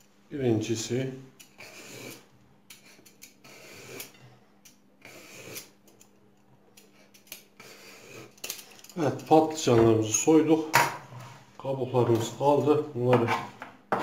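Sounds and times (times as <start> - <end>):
vegetable peeler scraping skin: 1.4 - 4.2, 5.0 - 5.8.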